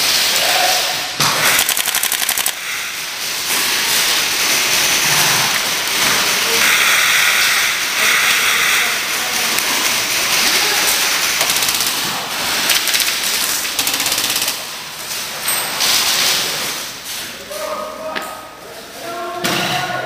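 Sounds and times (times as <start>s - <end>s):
airsoft rifles firing bursts: 1.4s - 3.0s, 5.9s - 14.7s.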